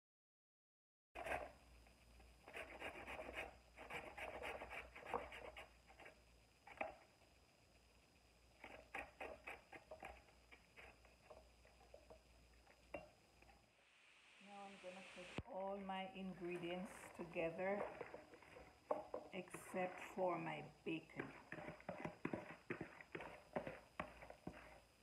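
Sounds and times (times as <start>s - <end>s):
carrot scraping on grater: 1.2s - 1.5s, 2.5s - 5.6s, 8.6s - 11.0s, 21.2s - 24.8s.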